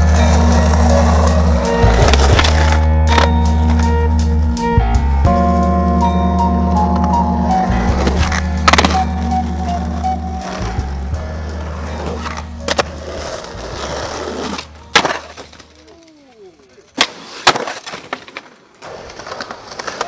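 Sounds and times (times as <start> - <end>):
skateboard wheels rolling on pavement: 0.0 - 4.6, 5.3 - 20.0
bass-heavy music: 0.0 - 15.0
skateboard clacking on concrete: 8.0 - 9.1, 11.5 - 20.0.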